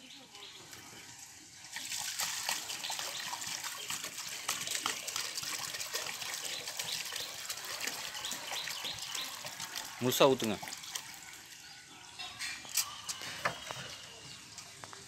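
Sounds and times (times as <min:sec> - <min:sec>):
gravy bubbling and simmering: 0:00.6 - 0:11.8.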